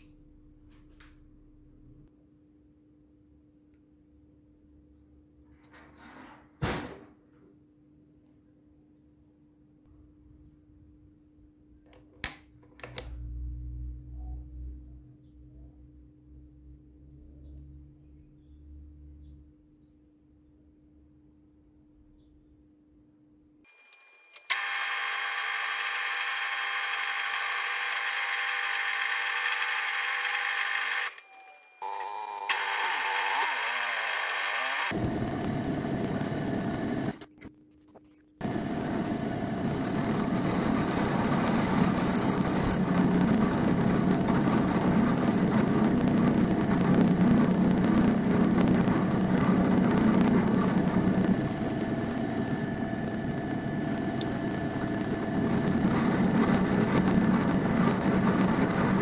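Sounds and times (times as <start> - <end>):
milling machine spindle whine: 38.4 - 59.0.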